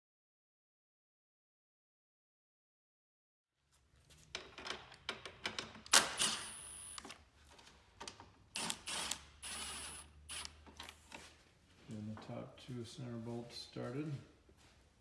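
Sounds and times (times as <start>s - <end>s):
cordless driver running: 8.6s - 10.5s.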